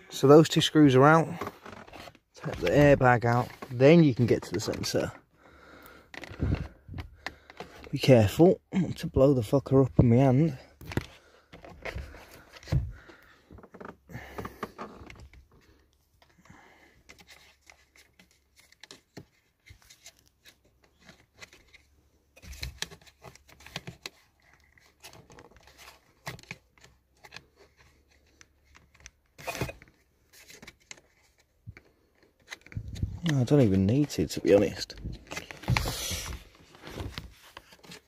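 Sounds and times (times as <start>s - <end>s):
clicks and knocks of plastic trim: 5.9s - 7.9s, 10.8s - 21.8s.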